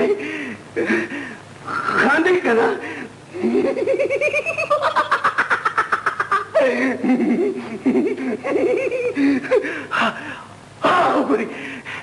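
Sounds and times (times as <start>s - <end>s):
man laughing: 3.3s - 10.2s.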